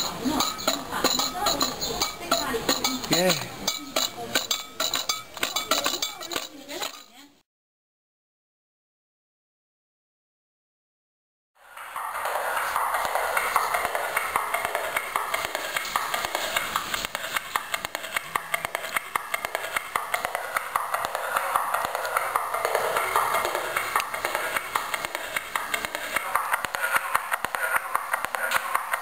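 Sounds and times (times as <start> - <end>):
rapid clicking: 11.9 - 29.0.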